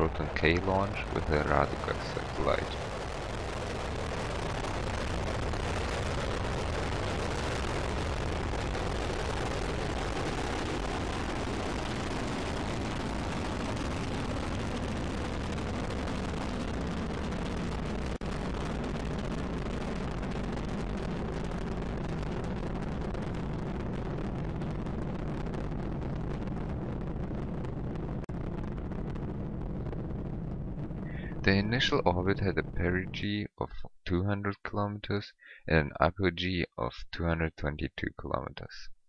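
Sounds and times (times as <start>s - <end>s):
rocket engines deep rushing roar: 0.0s - 3.1s.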